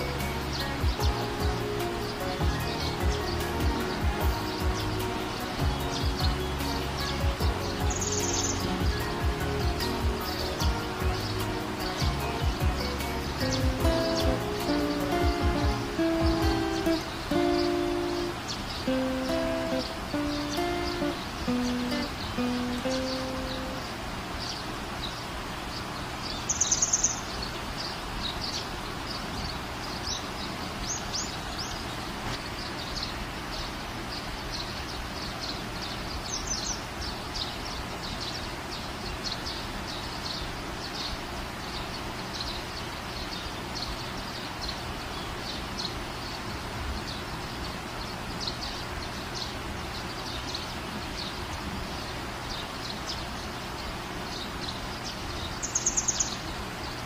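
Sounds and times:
loud rapid bird call: 0.0 - 44.0
outdoor background noise: 0.0 - 57.0
small birds chirping: 0.0 - 57.0.

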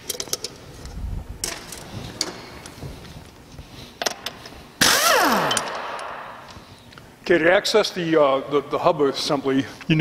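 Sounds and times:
impact wrench clicks: 4.0 - 6.6
impact wrench motor burst: 4.8 - 6.4.

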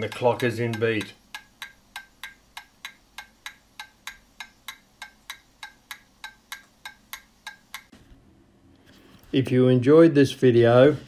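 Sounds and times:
clock ticking: 0.0 - 7.9.

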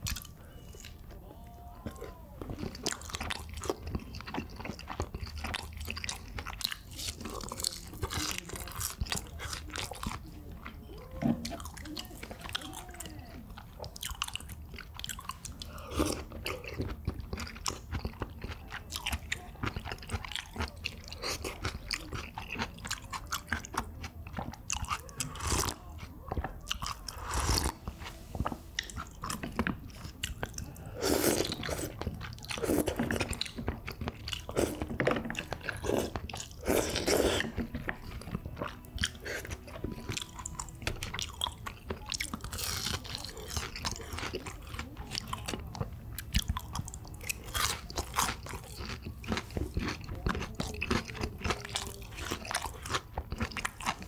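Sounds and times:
chewing with wet clicks: 0.0 - 54.0
slurping noodles: 27.1 - 38.3.

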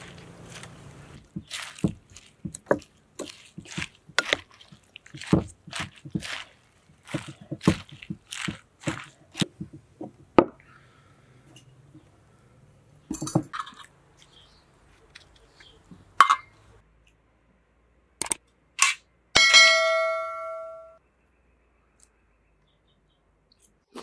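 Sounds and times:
spoon tossing wet lettuce: 0.0 - 9.9.

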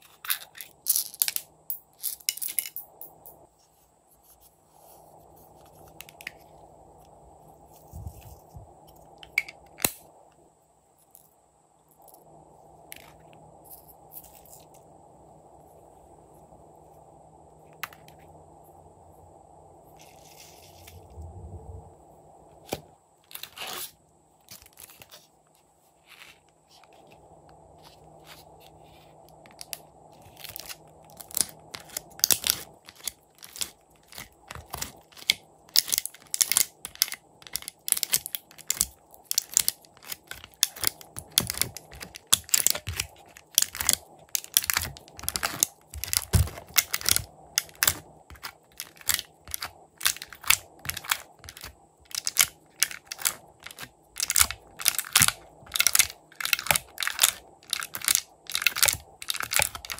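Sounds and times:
plastic tray crackling: 30.5 - 59.9.

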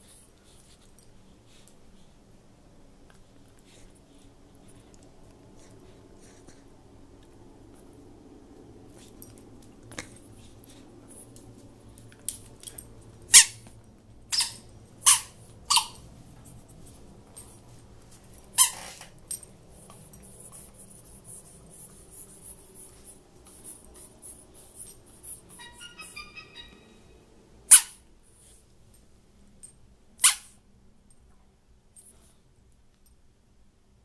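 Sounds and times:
squeak toy squeaking: 13.3 - 13.7, 14.3 - 16.0, 18.5 - 19.0, 24.8 - 28.0, 30.2 - 30.5.

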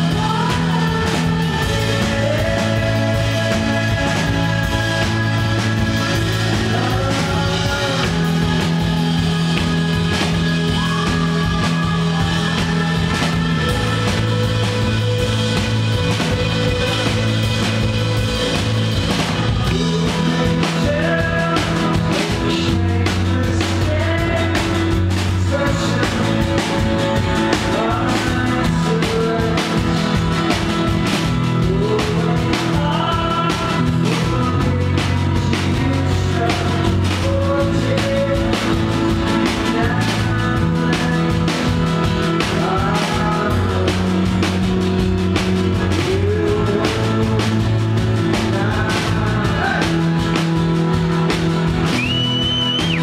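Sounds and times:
live rock band playing: 0.0 - 53.0
person singing: 0.0 - 53.0.

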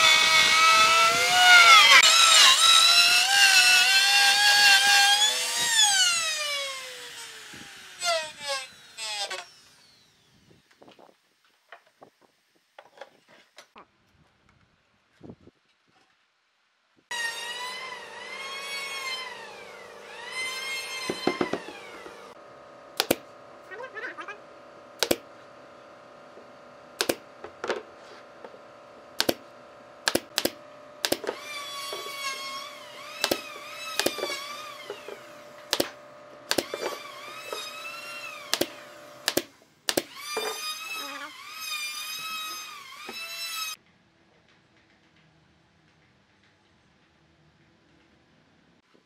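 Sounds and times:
nail gun firing: 23.0 - 23.3, 25.0 - 25.2, 27.0 - 27.2, 29.2 - 29.4, 30.0 - 31.5, 33.2 - 35.0, 35.7 - 37.7, 38.4 - 40.6.

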